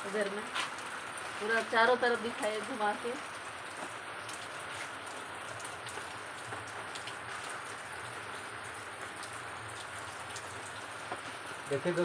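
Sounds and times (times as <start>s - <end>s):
raindrops ticking close by: 0.0s - 12.0s
heavy rain hissing: 6.2s - 12.0s.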